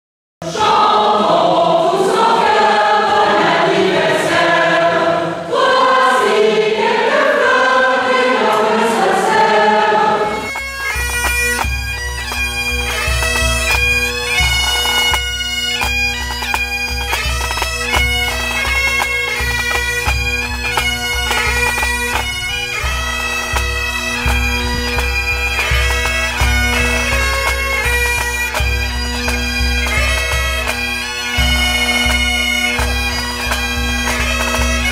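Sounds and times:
choir singing: 0.4s - 10.6s
bagpipes playing over drones: 0.7s - 4.8s, 5.9s - 34.9s.

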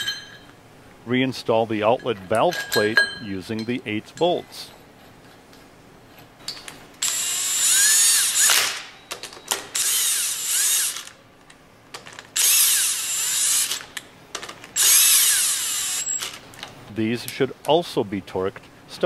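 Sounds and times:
impact wrench running: 7.0s - 8.8s, 9.7s - 11.2s, 12.4s - 13.9s, 14.8s - 16.4s.

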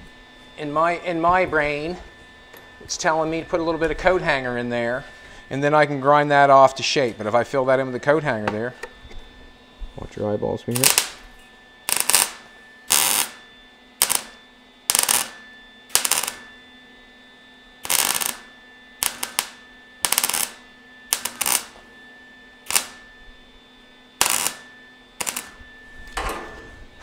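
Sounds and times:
welder crackling sizzle: 10.7s - 16.6s, 17.8s - 21.9s, 22.6s - 23.1s, 24.1s - 25.8s.

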